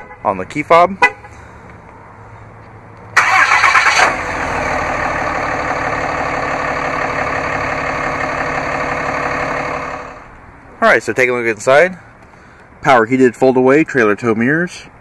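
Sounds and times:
diesel engine starting and idling: 0:03.1 - 0:10.4.

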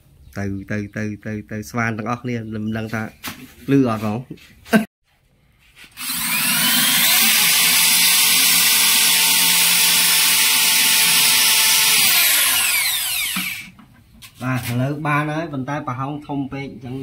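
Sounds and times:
electric drill boring into wood: 0:06.0 - 0:13.8.

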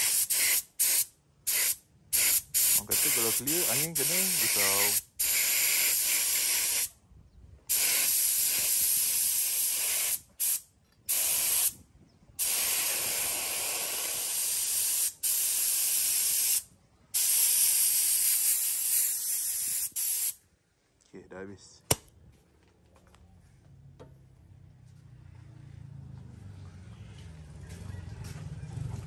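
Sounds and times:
spray gun hissing: 0:00.0 - 0:06.9, 0:07.7 - 0:11.7, 0:12.4 - 0:16.6, 0:17.2 - 0:20.4.

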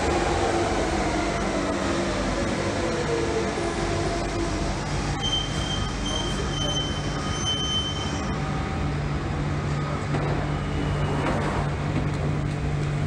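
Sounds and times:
low train hum: 0:00.0 - 0:13.0
high wheel and brake squeal: 0:05.2 - 0:08.4.

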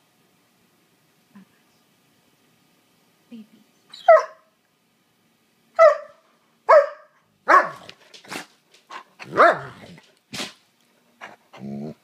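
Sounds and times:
dog barking: 0:04.0 - 0:04.5, 0:05.8 - 0:07.9, 0:09.2 - 0:09.8.

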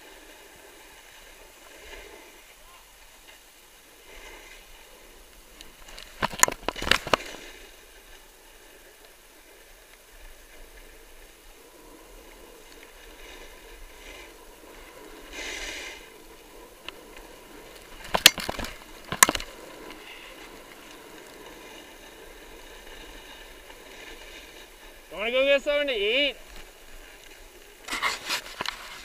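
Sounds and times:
snowboard sliding over snow: 0:00.0 - 0:29.0
sharp snowboard scrapes: 0:03.8 - 0:05.2, 0:10.6 - 0:25.2, 0:26.6 - 0:29.0.

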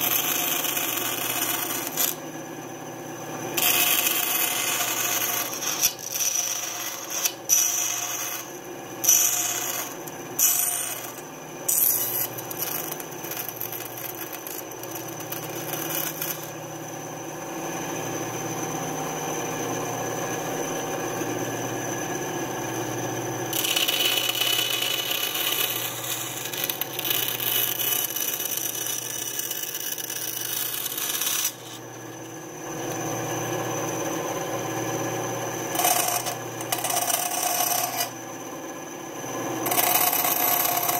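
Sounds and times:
bandsaw cutting plywood: 0:00.0 - 0:02.2, 0:03.5 - 0:16.6, 0:23.5 - 0:31.8, 0:35.7 - 0:38.1, 0:39.6 - 0:40.9.

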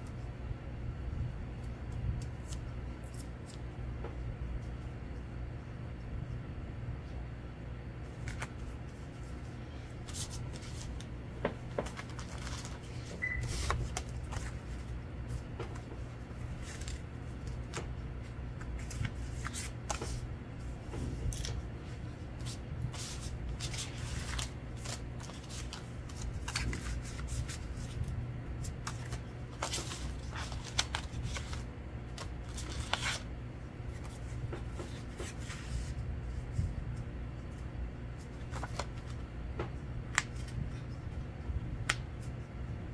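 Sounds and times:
steady low hum: 0:00.0 - 0:42.9
paper rustling and tapping: 0:10.1 - 0:18.0, 0:18.6 - 0:20.2, 0:22.4 - 0:28.0, 0:28.6 - 0:33.2, 0:34.0 - 0:35.9.

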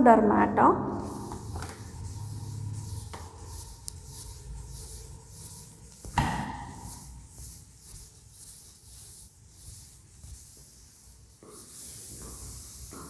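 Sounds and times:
cloth wiping chalkboard: 0:00.9 - 0:13.0
thump: 0:06.1 - 0:06.9.

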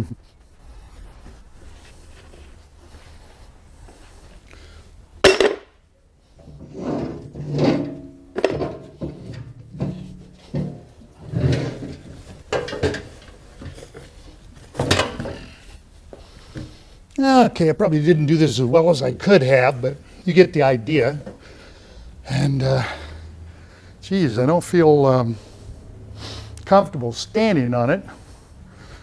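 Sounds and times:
safe scraping on steel shelf: 0:06.4 - 0:13.4.

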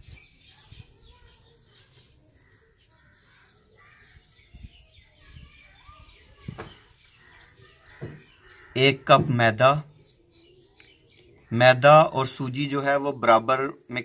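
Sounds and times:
crows cawing faintly: 0:01.4 - 0:04.5, 0:05.9 - 0:09.4.

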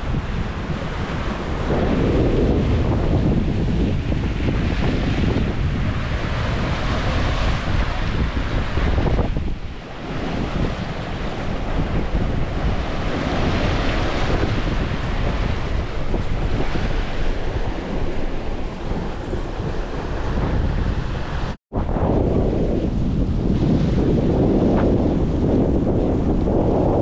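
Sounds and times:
water rushing along boat hull: 0:00.0 - 0:27.0
wind buffeting microphone: 0:00.0 - 0:27.0.

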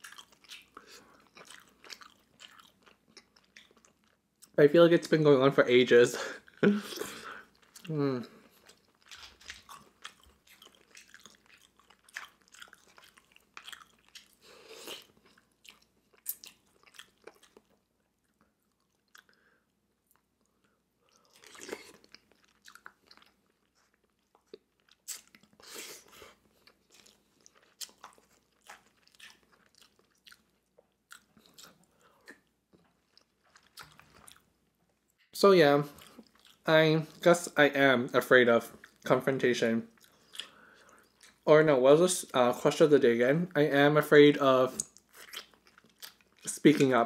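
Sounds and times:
person chewing: 0:00.0 - 0:04.6, 0:06.3 - 0:35.2, 0:35.9 - 0:37.3, 0:39.9 - 0:41.4, 0:44.7 - 0:47.0.

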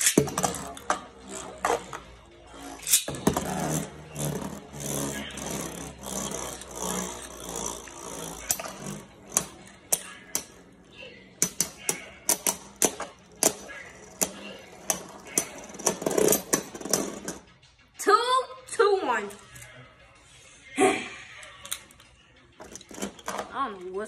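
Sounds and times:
spinning tops clacking: 0:11.4 - 0:17.5.

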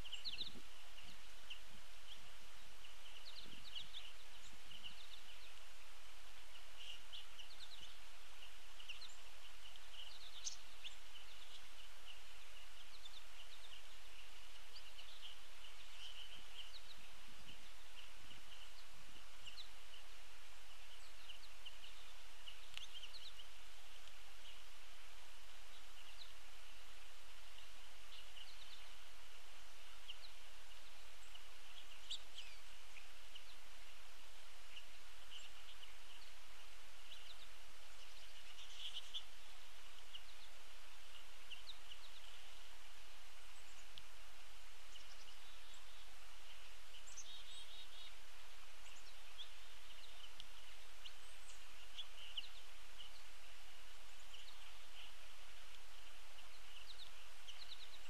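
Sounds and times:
steady outdoor hiss: 0:00.0 - 0:58.0
finches twittering: 0:06.4 - 0:24.8.

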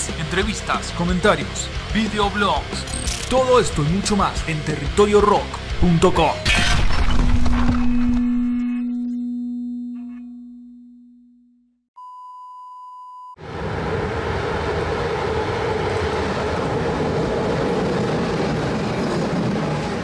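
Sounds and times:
low tone: 0:05.8 - 0:13.4
high beep: 0:12.0 - 0:13.4
train passing rumble: 0:13.4 - 0:20.0.

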